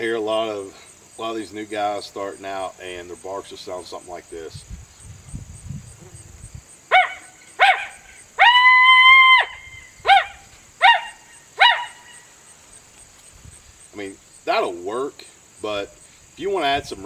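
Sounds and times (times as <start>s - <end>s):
coyote call barks and howl: 6.9s - 12.3s.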